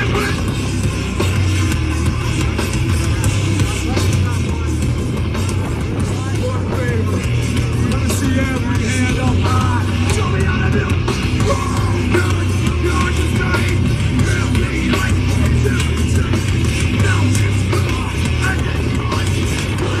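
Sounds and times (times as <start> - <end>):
bass guitar: 0.0 - 20.0
distorted guitars: 0.0 - 20.0
drums: 0.0 - 20.0
shouted vocals: 7.9 - 15.7.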